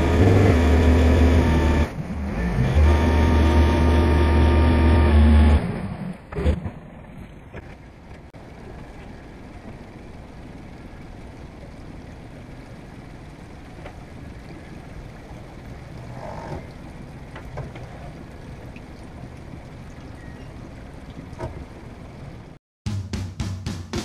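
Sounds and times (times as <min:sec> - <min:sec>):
boat engine idling: 0:00.0 - 0:02.0, 0:07.1 - 0:22.6.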